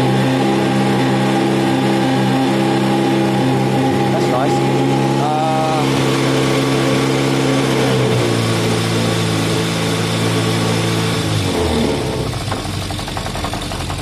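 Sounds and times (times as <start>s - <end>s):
motorcycle engine idling: 12.2s - 14.0s.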